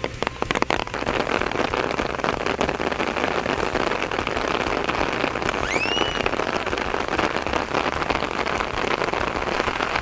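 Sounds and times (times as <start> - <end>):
heavy rain: 0.0 - 10.0
rising whistle: 5.5 - 6.3.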